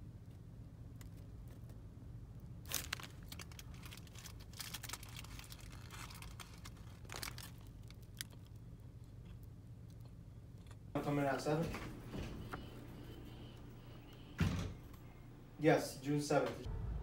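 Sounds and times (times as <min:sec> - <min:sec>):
low steady hum: 0:00.0 - 0:17.0
paper wrapper crinkling: 0:02.5 - 0:08.7.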